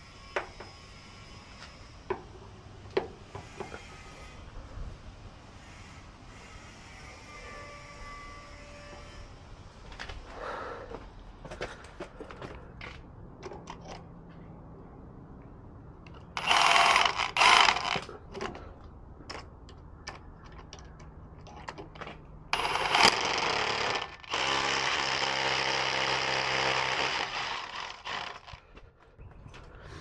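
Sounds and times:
cordless drill running: 16.4 - 18.0, 22.6 - 28.6.

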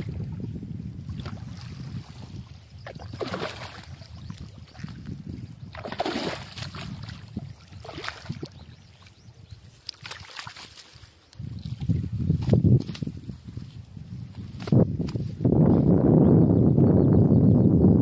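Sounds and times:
wind rumble on microphone: 0.0 - 10.1, 10.9 - 18.0
fish splashing in water: 2.9 - 5.0, 5.7 - 8.6, 9.9 - 11.0.

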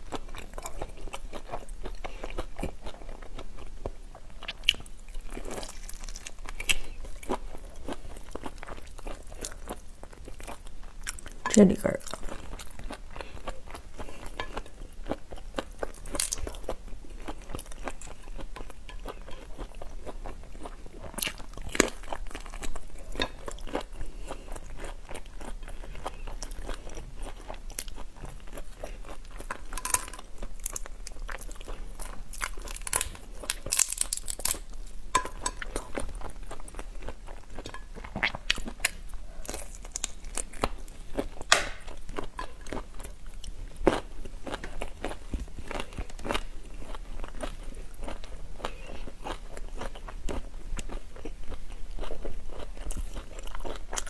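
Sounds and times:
chewing and crunching: 0.0 - 54.0
shells cracking: 41.5 - 41.9.

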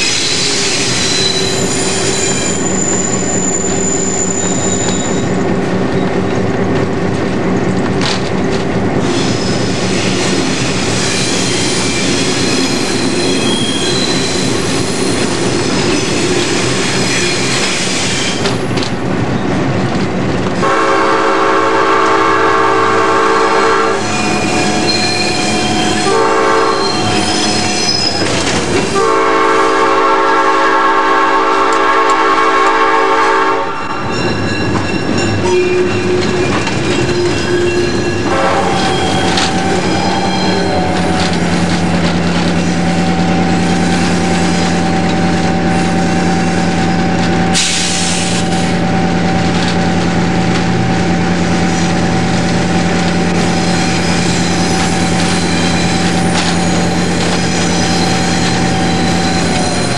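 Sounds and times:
locomotive air horn blasts: 20.6 - 27.8, 28.8 - 33.8, 38.2 - 41.2.

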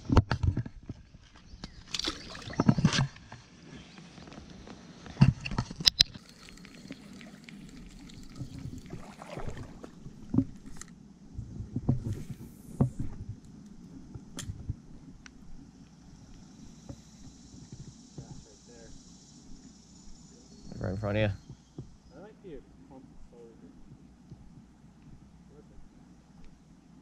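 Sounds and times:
sloshing steps in water: 1.9 - 3.0, 6.2 - 10.8.

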